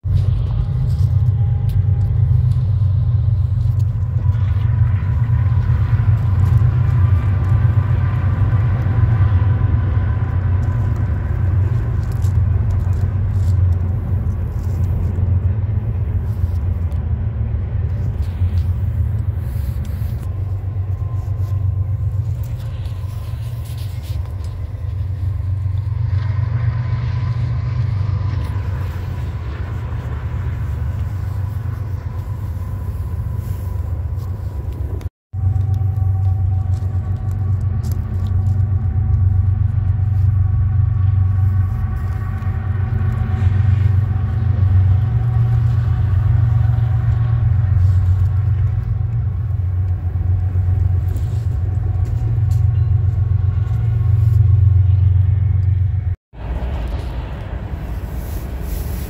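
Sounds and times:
low vehicle rumble: 0.0s - 59.0s.

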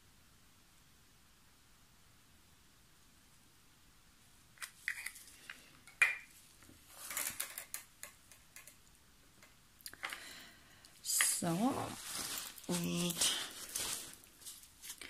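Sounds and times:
plastic cups clicking and tapping: 4.6s - 6.3s, 7.1s - 8.8s.

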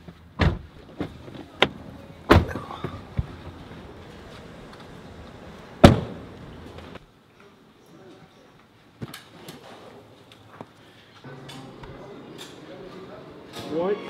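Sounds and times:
car door shutting: 0.4s - 3.4s, 5.8s - 6.2s.

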